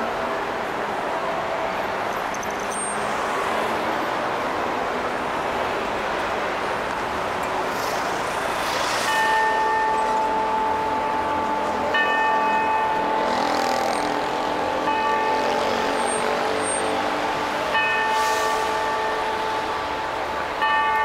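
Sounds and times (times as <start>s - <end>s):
city traffic: 0.0s - 21.0s
clock tower bell striking: 9.1s - 21.0s.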